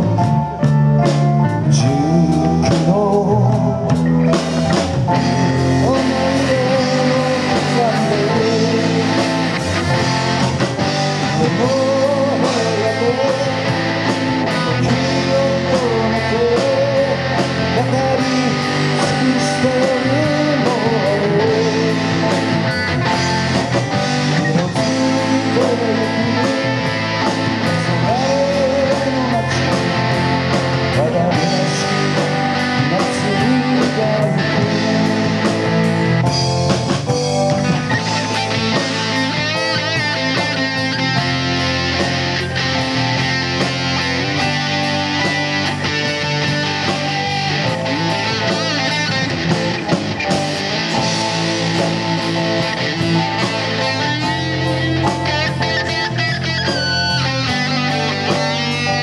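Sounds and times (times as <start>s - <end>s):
drum kit beat: 0.0s - 59.0s
live rock band playing: 0.0s - 59.0s
lead vocal singing: 1.5s - 4.1s, 4.8s - 36.6s.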